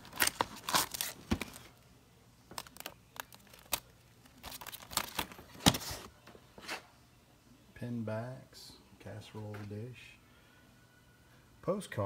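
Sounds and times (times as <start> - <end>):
plastic sleeves rustling and clicking: 0.0 - 1.7, 2.5 - 6.1.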